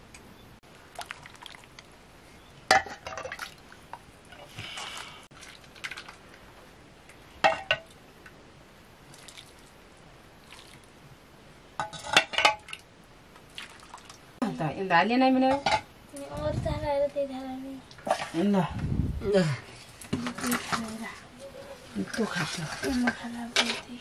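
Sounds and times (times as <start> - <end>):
metal pots and plates clinking: 11.8 - 12.7.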